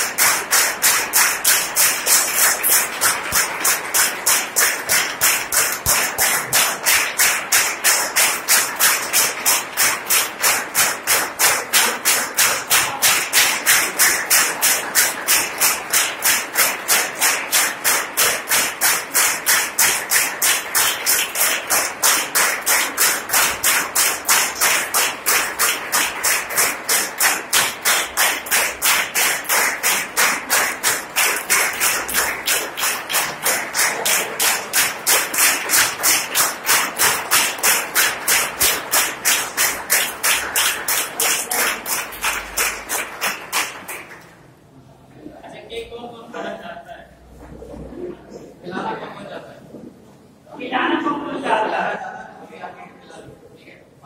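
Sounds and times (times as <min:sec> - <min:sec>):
crowd hubbub: 0:00.0 - 0:42.9
people clapping in rhythm: 0:00.0 - 0:44.6.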